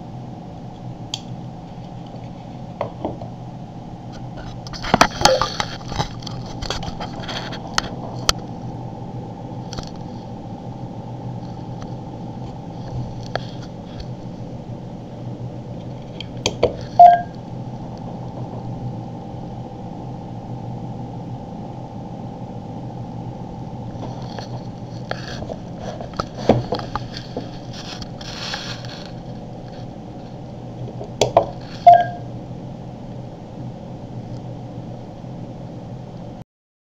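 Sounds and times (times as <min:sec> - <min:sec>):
steady low hum: 0:00.0 - 0:36.4
short beeps: 0:17.0 - 0:17.3, 0:31.8 - 0:32.3.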